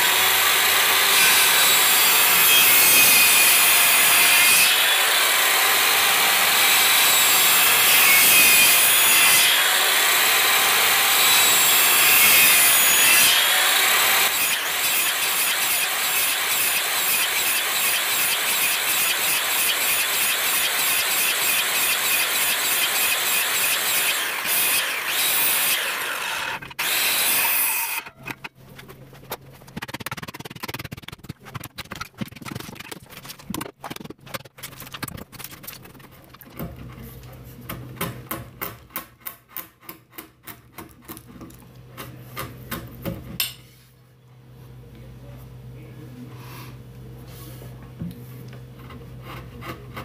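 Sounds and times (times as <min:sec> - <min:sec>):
circular saw cutting wood: 0:00.0 - 0:28.5.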